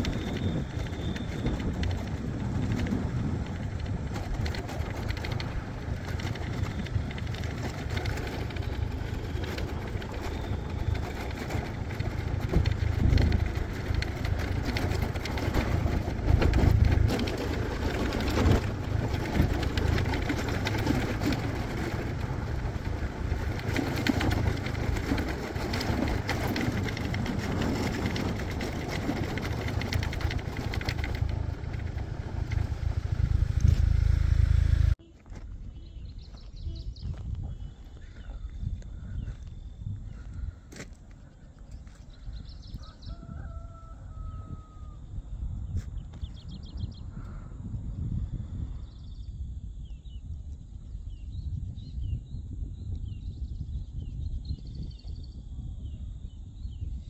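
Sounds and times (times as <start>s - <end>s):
motorbike engine rumble: 0.0s - 49.1s
wind rushing over microphone: 0.0s - 57.0s.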